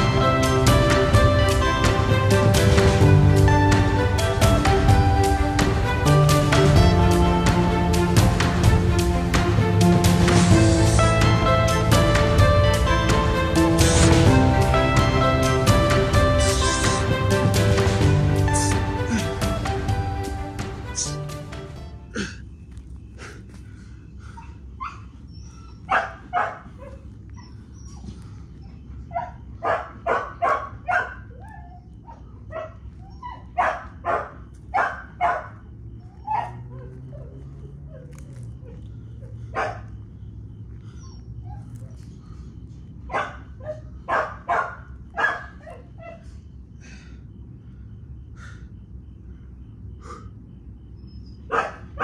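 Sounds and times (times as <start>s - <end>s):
steady low hum: 0.0s - 52.0s
dog barking: 25.8s - 28.1s, 29.1s - 39.9s, 43.1s - 46.3s, 51.5s - 52.0s.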